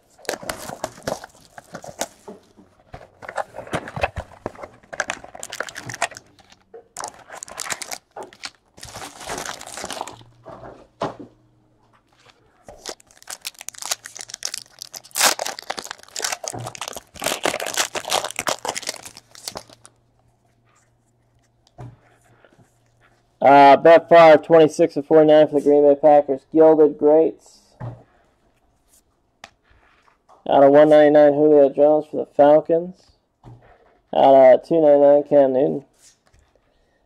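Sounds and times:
plastic wrappers crinkling and tearing: 0.0 - 10.4, 12.1 - 20.0.

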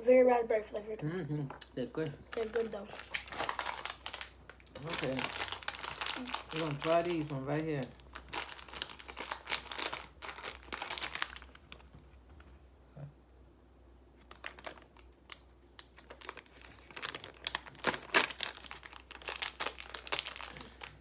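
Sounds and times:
plastic packaging crinkling: 2.3 - 12.3, 14.2 - 21.0.

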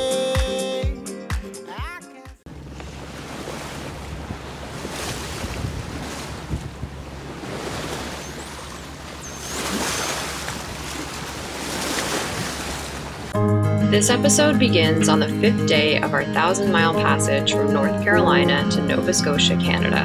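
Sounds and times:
water splashing past a hull: 2.5 - 13.4
wind buffeting the microphone: 2.6 - 13.3.

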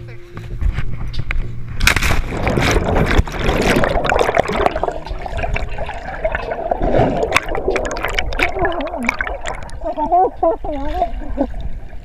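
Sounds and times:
small sharp splashes and clicks: 1.8 - 6.7, 7.3 - 9.9
underwater gurgling and sloshing: 1.8 - 12.0.

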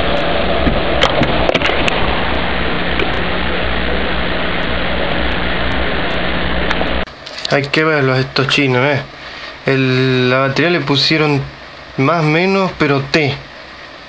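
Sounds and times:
loud steady hiss: 0.0 - 14.0
low hum: 0.0 - 14.0.

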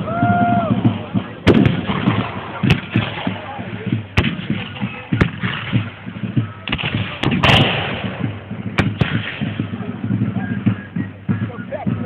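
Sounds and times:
distant gunshot reports: 1.5 - 6.0, 6.6 - 10.8
musket shots: 6.7 - 9.6.

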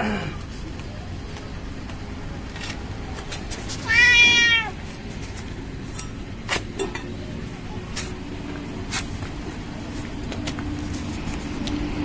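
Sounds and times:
cat meowing: 3.8 - 4.8.

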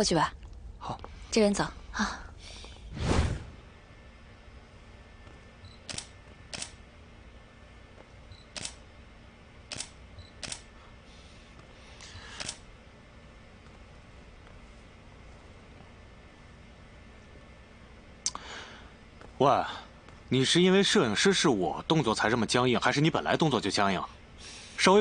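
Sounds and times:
camera shutter clicks: 5.8 - 6.8, 8.5 - 8.8, 9.7 - 10.7.

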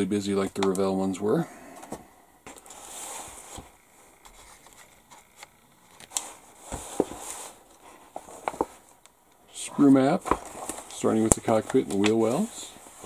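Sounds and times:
paper booklet rustling: 2.5 - 9.0, 9.8 - 13.0.

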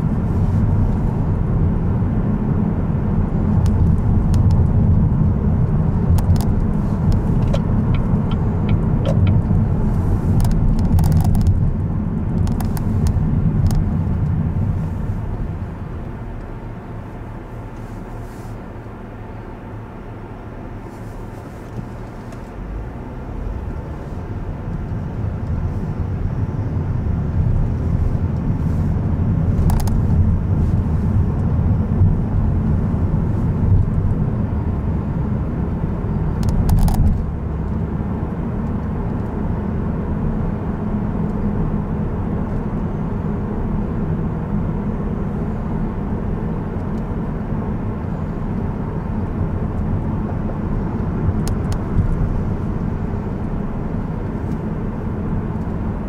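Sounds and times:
car engine and road rumble: 0.0 - 56.0.

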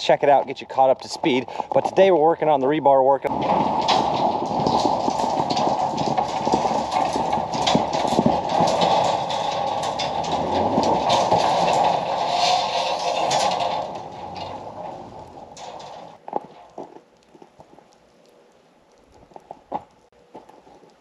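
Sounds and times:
truck engine and tyres: 0.0 - 21.0
clattering knocks: 3.3 - 17.0.

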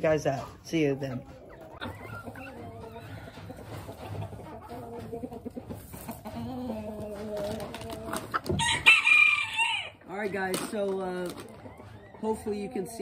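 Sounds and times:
chickens clucking: 0.0 - 13.0
chicken drawn-out call: 6.3 - 10.0.

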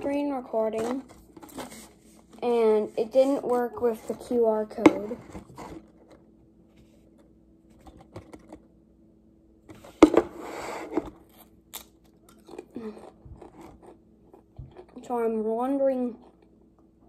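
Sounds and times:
chewing crunches: 11.3 - 15.0, 16.2 - 16.7
crisp bitten with crunch: 11.3 - 15.0.

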